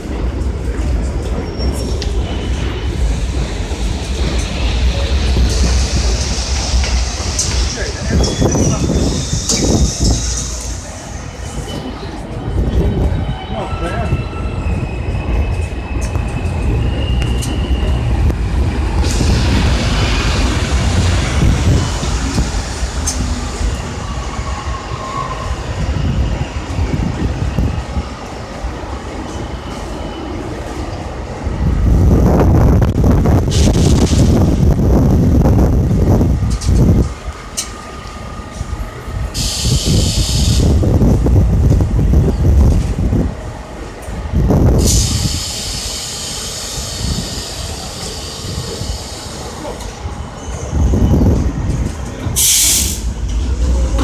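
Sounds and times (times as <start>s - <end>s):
train wheels rumbling on track: 0.0s - 54.0s
hiss: 3.9s - 8.0s, 39.4s - 40.8s, 44.8s - 49.7s, 52.4s - 53.2s
high wheel squeal: 4.4s - 18.2s.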